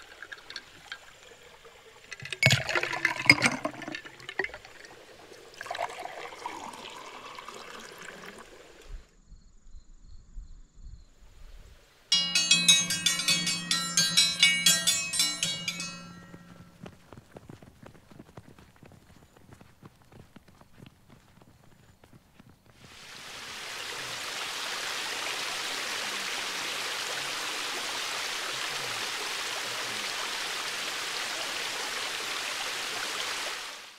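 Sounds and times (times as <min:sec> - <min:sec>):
water running: 0:00.0 - 0:09.0, 0:12.1 - 0:17.0
running water rushing: 0:00.0 - 0:09.1, 0:22.8 - 0:33.9
music with bell-like tones: 0:12.1 - 0:17.0.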